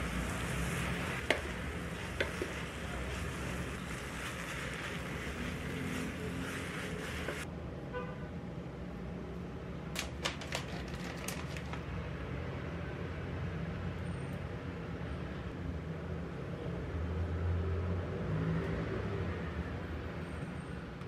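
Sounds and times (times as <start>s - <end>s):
noodles sizzling in a pot: 0.0s - 7.5s
plastic packet crinkling: 10.0s - 11.9s.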